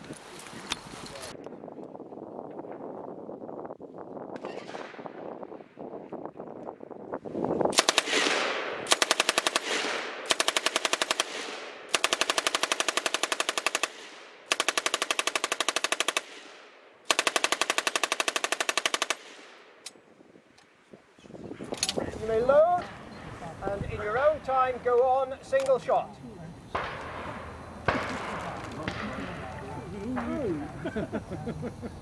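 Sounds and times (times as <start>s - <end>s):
machine gun firing bursts: 7.7s - 19.6s.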